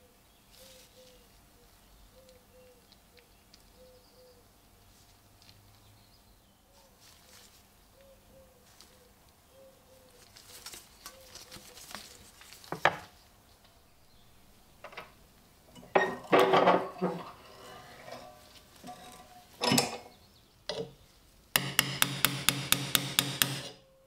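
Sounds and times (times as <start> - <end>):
bird calling softly: 0.0 - 4.8, 5.4 - 14.6.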